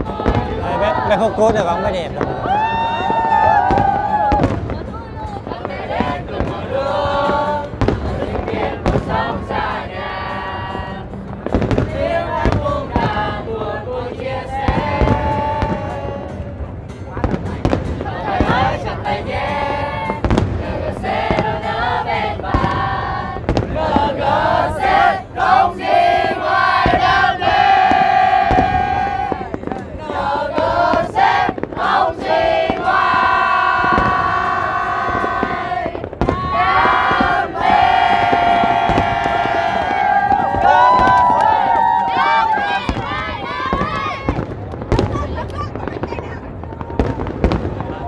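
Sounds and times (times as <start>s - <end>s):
crowd cheering and shouting: 0.0s - 4.9s, 21.1s - 46.0s
fireworks bursting with sharp bangs: 0.0s - 9.8s, 11.2s - 16.6s, 17.2s - 48.0s.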